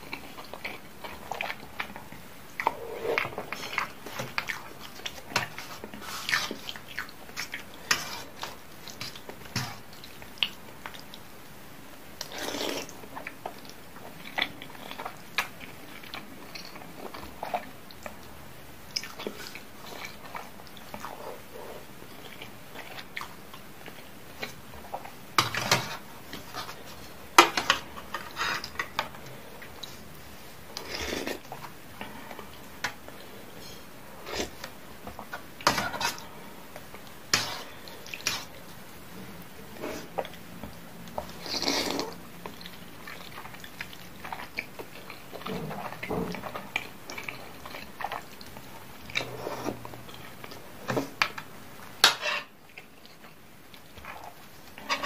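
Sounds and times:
person chewing: 0:00.0 - 0:11.2, 0:12.2 - 0:18.3, 0:18.9 - 0:25.2, 0:39.4 - 0:50.7
slurping noodles and soup: 0:02.6 - 0:06.8, 0:12.2 - 0:13.0, 0:30.8 - 0:32.5, 0:34.1 - 0:34.7, 0:39.7 - 0:40.3, 0:41.2 - 0:42.2, 0:49.1 - 0:50.3.

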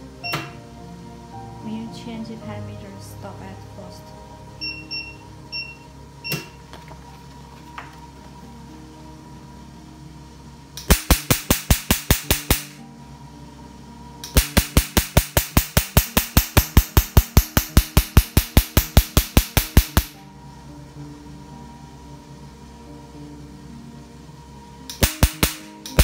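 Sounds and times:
laser firing sharp snaps: 0:10.8 - 0:12.8, 0:14.2 - 0:20.2, 0:24.9 - 0:26.0.

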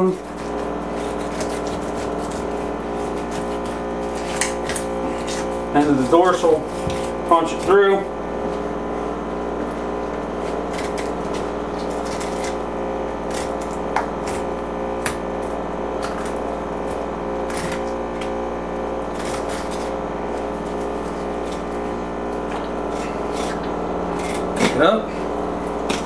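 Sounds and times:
steady hum: 0:00.0 - 0:26.0
knife scraping fish bones: 0:00.2 - 0:05.6, 0:10.3 - 0:15.2, 0:16.0 - 0:18.4, 0:19.0 - 0:24.8.

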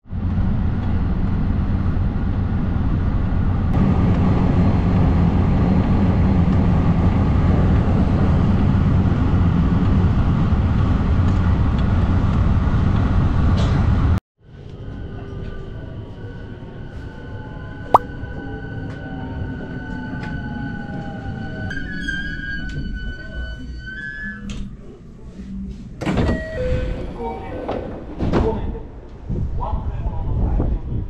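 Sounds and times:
train wheels rumbling on rail: 0:00.1 - 0:14.2.

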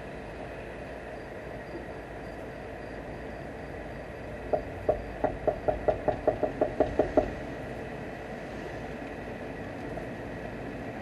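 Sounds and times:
car cabin hum in rain: 0:04.4 - 0:08.0
rapid knocks or taps: 0:04.5 - 0:07.4.

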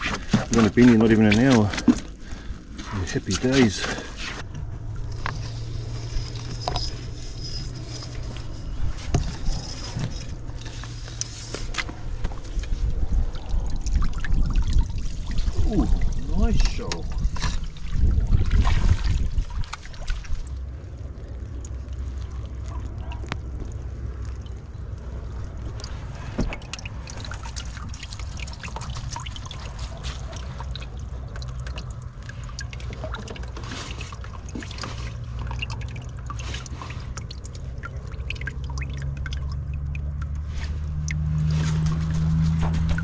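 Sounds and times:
water dripping from net: 0:12.0 - 0:43.0.

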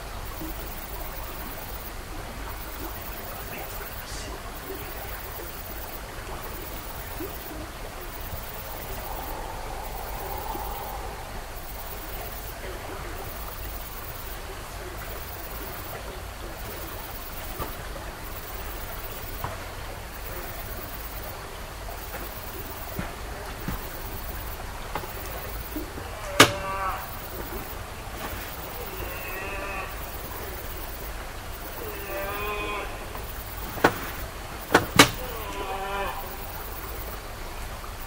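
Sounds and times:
high-pitched hiss: 0:00.0 - 0:38.0
rushing hiss: 0:00.0 - 0:38.0
low rumble: 0:07.9 - 0:13.6.

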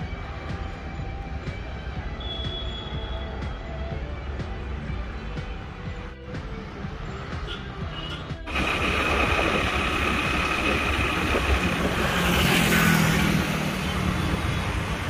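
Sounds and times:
highway traffic: 0:00.0 - 0:15.0
vehicle passing close: 0:08.5 - 0:15.0.

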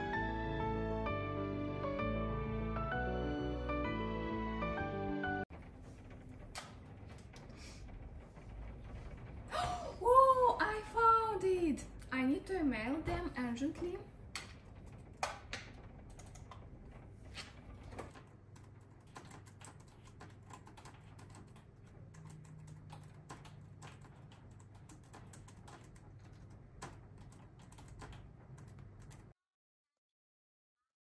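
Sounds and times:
typing on computer keyboard: 0:14.3 - 0:16.7, 0:17.9 - 0:29.4.

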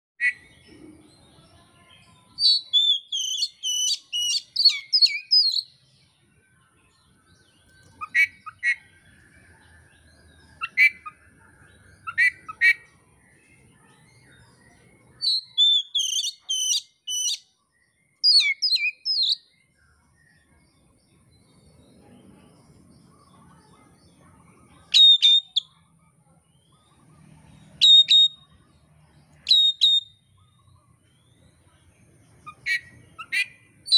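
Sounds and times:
magpie-robin singing: 0:00.2 - 0:21.9, 0:22.7 - 0:33.9
bird sharp calls: 0:02.1 - 0:05.8, 0:07.7 - 0:09.3, 0:10.4 - 0:13.0, 0:14.6 - 0:17.5, 0:23.0 - 0:25.8, 0:26.6 - 0:28.7, 0:29.3 - 0:31.4, 0:32.3 - 0:33.9.

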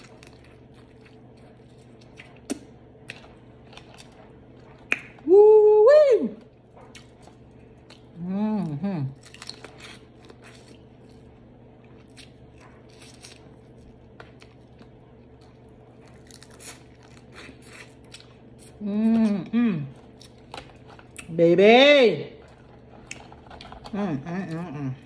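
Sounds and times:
woman chewing: 0:00.0 - 0:05.3, 0:06.4 - 0:21.3, 0:22.4 - 0:25.0
woman vocal exclamation: 0:05.2 - 0:06.4.

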